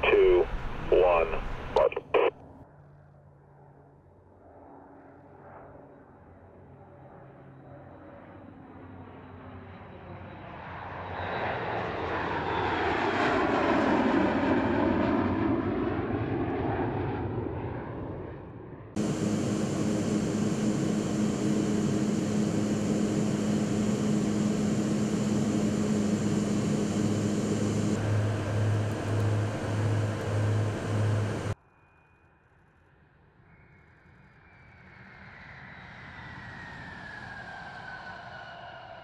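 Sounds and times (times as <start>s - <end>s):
engine drone with hum and hiss: 0.0s - 2.3s, 19.0s - 31.6s
jet engine passing: 19.0s - 31.6s.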